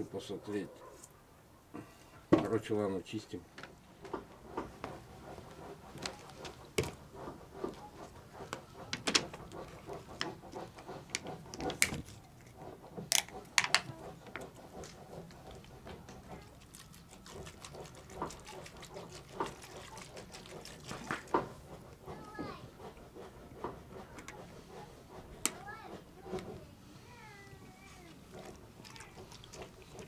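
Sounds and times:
sharp clicks and knocks: 6.0s - 16.4s, 21.1s - 26.6s.

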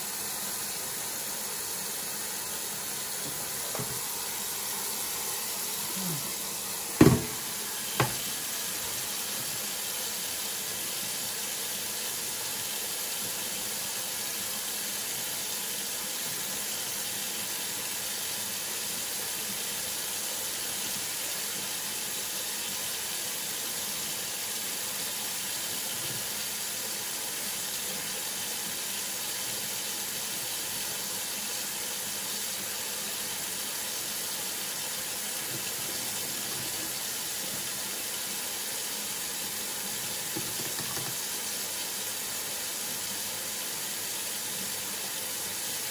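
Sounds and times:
faucet water into steel sink: 0.0s - 45.9s
sharp knocks: 7.0s - 7.4s, 8.0s - 8.2s.

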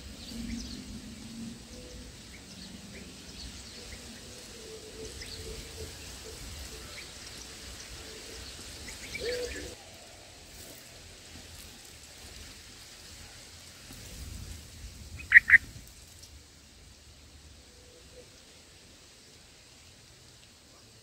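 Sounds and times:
faint outdoor background: 0.0s - 21.0s
sharp bird calls: 15.2s - 15.7s.

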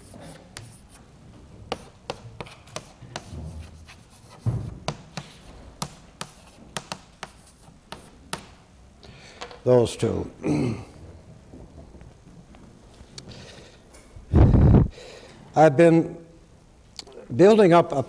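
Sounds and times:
chalk tapping on a blackboard: 0.0s - 1.1s, 1.7s - 8.6s
faint chalk scraping: 0.0s - 1.1s, 1.7s - 8.2s
dull thump: 4.4s - 5.7s.

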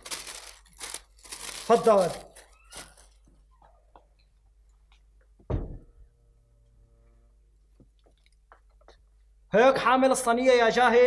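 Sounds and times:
heavy thump: 5.4s - 6.0s.

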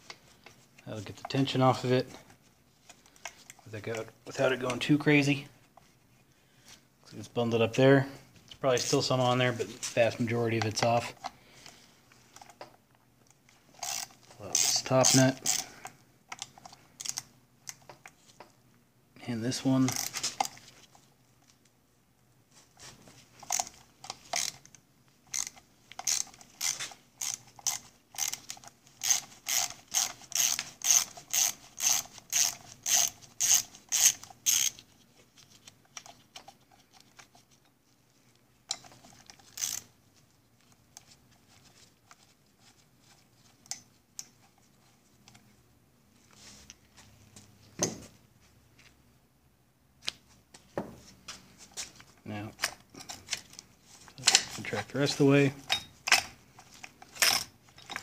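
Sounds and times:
ratchet wrench clicking: 13.8s - 15.6s, 23.4s - 24.6s, 25.3s - 34.8s, 39.5s - 39.9s.

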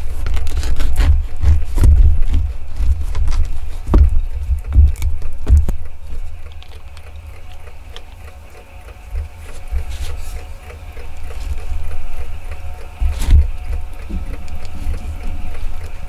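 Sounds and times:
knife cutting bread: 0.0s - 5.8s
plastic wrapper crinkling: 0.0s - 16.0s
sharp knocks: 1.0s - 5.8s, 13.0s - 14.9s
faint even ticking: 1.0s - 16.0s.

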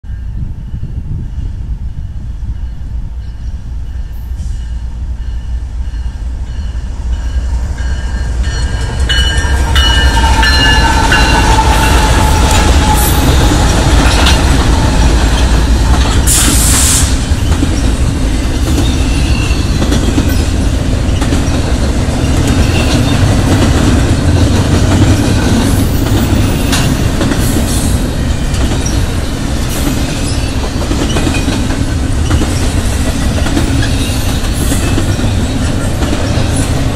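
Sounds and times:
diesel locomotive rumble: 0.4s - 36.9s
train wheels clattering on rails: 5.3s - 36.9s
sharp hiss: 16.3s - 17.4s.

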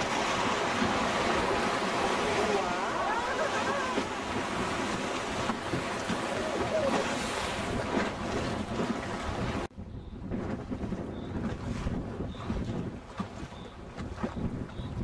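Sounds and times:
river rapids rushing: 0.0s - 7.6s.

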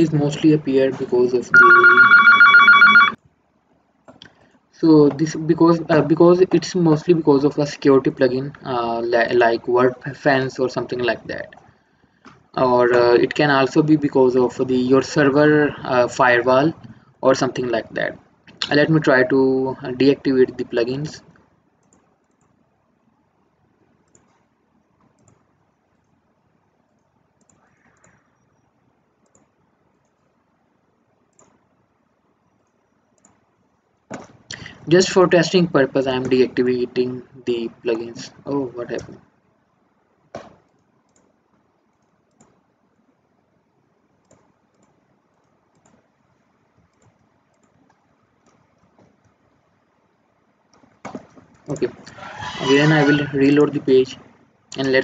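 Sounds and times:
faint computer mouse clicks: 21.8s - 22.6s, 24.0s - 26.2s, 27.0s - 28.5s, 31.3s - 31.6s, 32.6s - 33.4s, 40.4s - 42.6s, 44.2s - 46.1s.

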